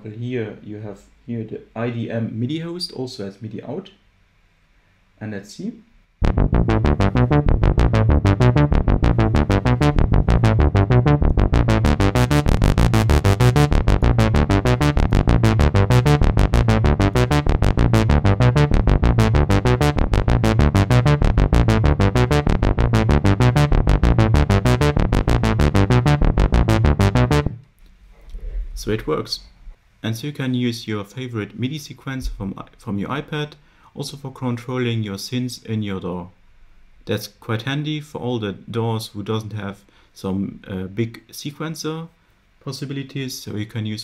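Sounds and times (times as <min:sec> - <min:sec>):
synthesizer bass sequence: 0:06.2 - 0:27.7.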